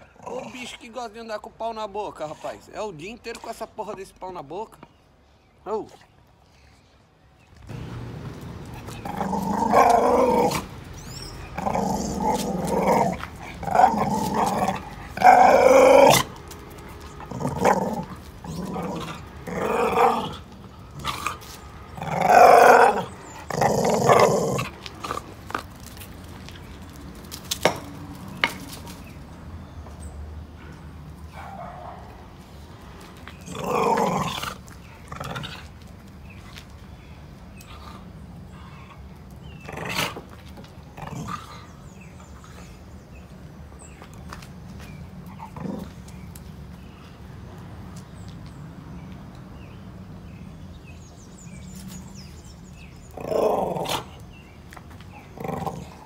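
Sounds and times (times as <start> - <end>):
dog growling: 8.9 - 16.3, 17.2 - 21.4, 22.0 - 25.3, 33.4 - 35.7, 53.1 - 54.2, 55.2 - 56.0.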